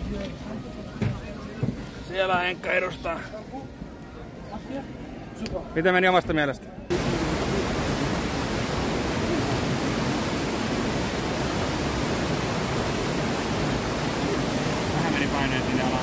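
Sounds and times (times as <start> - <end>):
river water rushing: 6.9 - 16.0.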